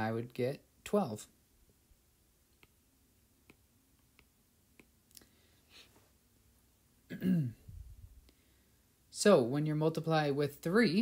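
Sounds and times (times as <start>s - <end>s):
soft breathy sound: 5.1s - 6.2s, 7.5s - 9.0s.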